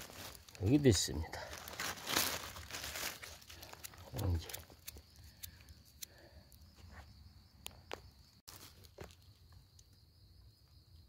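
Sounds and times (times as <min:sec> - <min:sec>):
footsteps crackling on dry leaves: 0:00.0 - 0:04.8, 0:08.5 - 0:09.3
insects chirring: 0:00.0 - 0:11.0.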